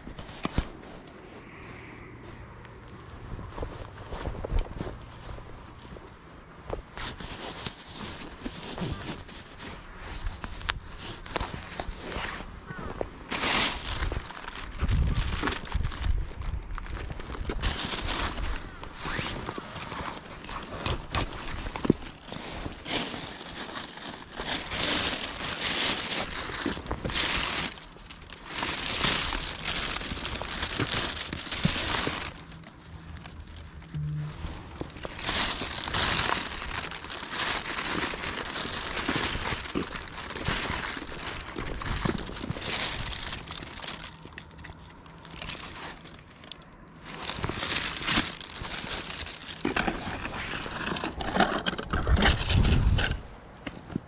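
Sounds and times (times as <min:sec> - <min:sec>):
plastic garbage bag rustling: 0:06.9 - 0:54.0.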